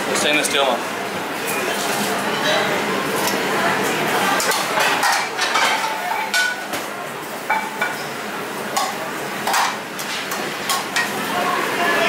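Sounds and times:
kitchen background rush: 0.0s - 12.0s
metal kitchenware clinking: 4.4s - 6.6s.

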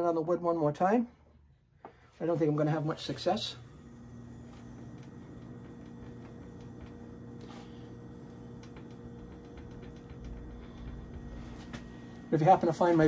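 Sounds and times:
low steady hum: 0.0s - 13.0s
plastic unit ticking: 4.9s - 12.7s.

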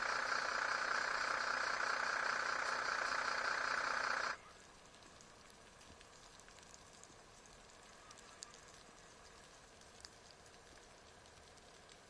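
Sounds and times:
engine running: 0.0s - 4.4s.

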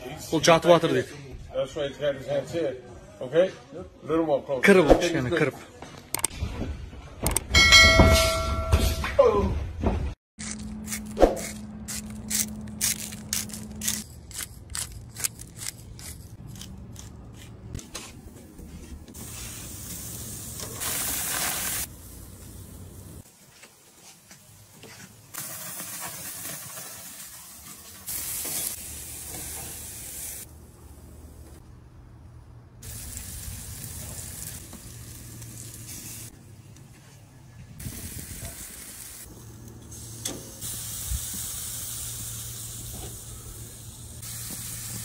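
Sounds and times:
steaks sizzling on a grill: 19.2s - 23.2s, 25.4s - 30.5s, 32.8s - 36.3s, 39.9s - 45.0s.

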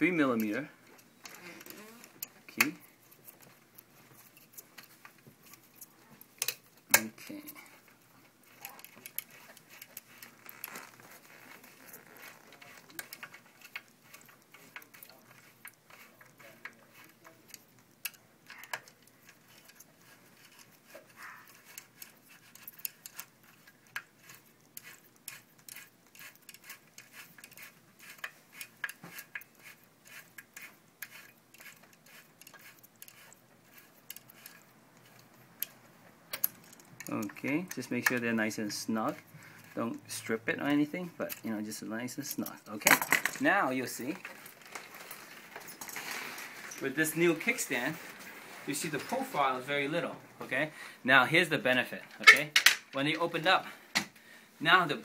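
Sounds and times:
small metallic clicks and taps: 0.4s - 7.6s, 30.4s - 38.3s.

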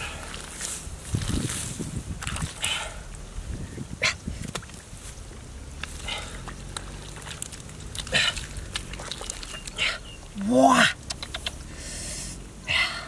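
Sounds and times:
hands digging in wet mud: 0.0s - 3.2s, 4.2s - 11.7s
sharp clicks: 11.0s - 11.6s.

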